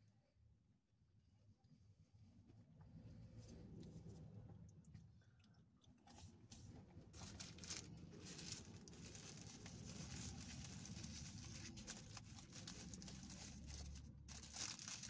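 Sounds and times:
paper wrapper crinkling: 7.1 - 15.0.

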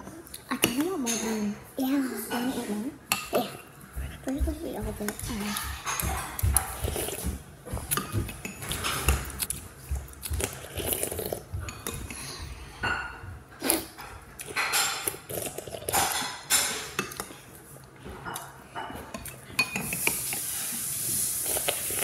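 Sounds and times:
chewing: 3.2 - 12.8, 13.5 - 22.0
slurping noodles: 10.3 - 12.3, 19.8 - 22.0.

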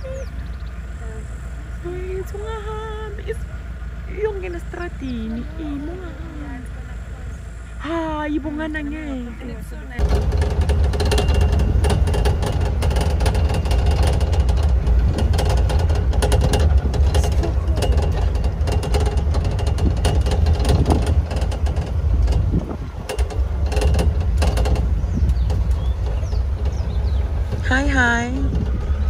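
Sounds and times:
vehicle rumbling: 0.0 - 29.0
rattles and knocks: 9.9 - 29.0.

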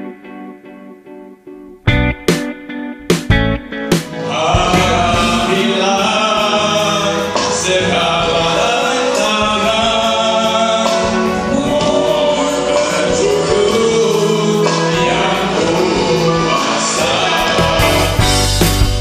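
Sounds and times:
live band playing: 1.9 - 19.0
person singing: 3.9 - 19.0.

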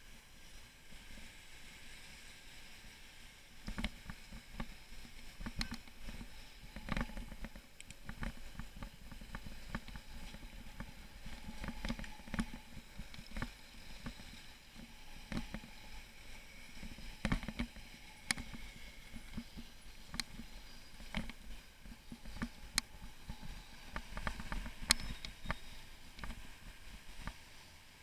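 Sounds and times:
bicycle clicks and rattles: 3.6 - 15.9, 16.7 - 26.6.

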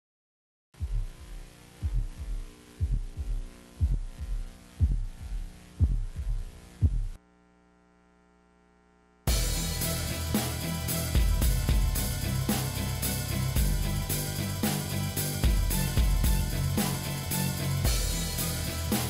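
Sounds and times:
heartbeat thumps: 0.8 - 7.2, 15.4 - 16.6
steady hum: 0.8 - 19.0.

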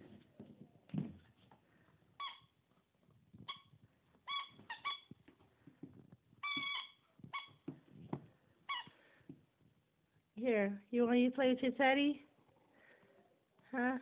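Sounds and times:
squeaky dog toy squeaking: 2.2 - 2.6, 3.4 - 5.2, 6.4 - 7.7.

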